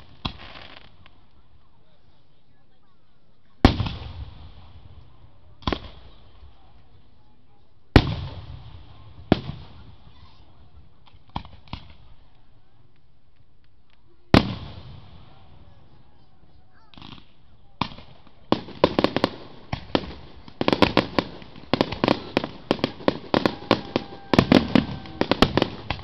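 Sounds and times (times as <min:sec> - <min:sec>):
fireworks booming: 0:03.6 - 0:05.0, 0:16.9 - 0:26.0.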